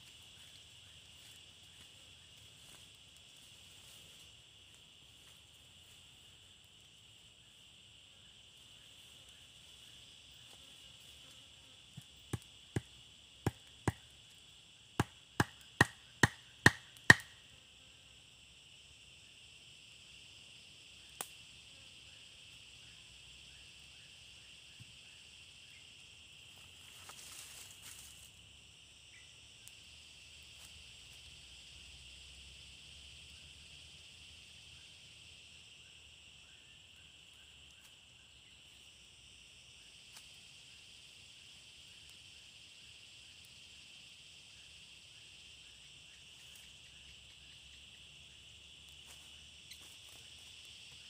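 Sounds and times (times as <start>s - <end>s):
insects droning: 0.0s - 51.0s
chopping knocks on wood: 15.0s - 17.3s.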